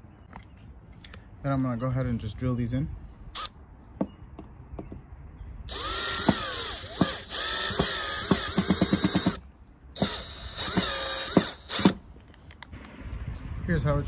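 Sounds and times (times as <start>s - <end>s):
cordless drill motor whining: 5.7s - 9.4s, 10.0s - 12.0s
rapid drill clicking: 5.7s - 9.4s, 10.0s - 12.0s.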